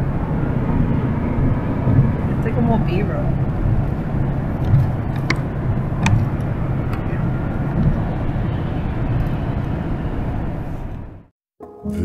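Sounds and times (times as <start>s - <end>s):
car road and engine rumble: 0.0s - 11.3s.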